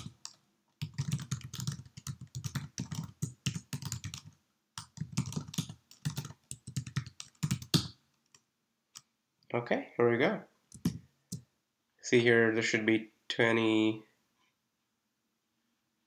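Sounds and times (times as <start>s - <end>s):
fast typing on keyboard: 0.0s - 8.0s.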